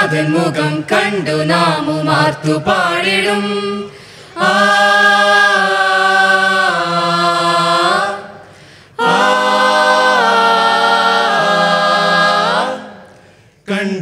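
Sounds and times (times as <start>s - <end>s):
mixed choir singing a cappella: 0.0s - 13.4s.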